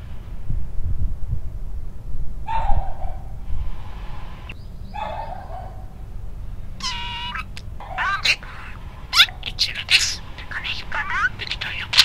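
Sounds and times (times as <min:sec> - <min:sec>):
low outdoor rumble: 0:00.0 - 0:12.0
dog barking: 0:02.5 - 0:03.4, 0:04.9 - 0:06.0, 0:07.0 - 0:08.2, 0:09.2 - 0:09.6.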